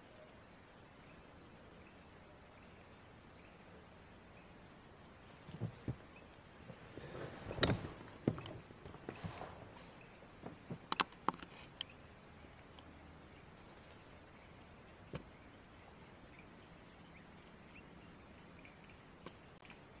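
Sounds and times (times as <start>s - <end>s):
insects trilling: 0.0s - 20.0s
light clicks and knocks: 5.4s - 11.9s.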